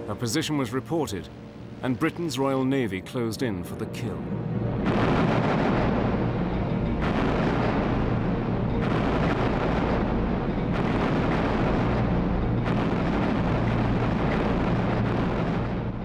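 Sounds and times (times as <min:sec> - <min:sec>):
heavy gunfire and shell explosions: 0:04.8 - 0:16.0.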